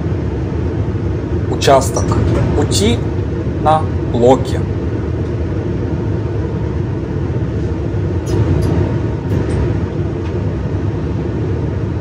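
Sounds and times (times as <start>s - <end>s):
train rumble: 0.0s - 12.0s.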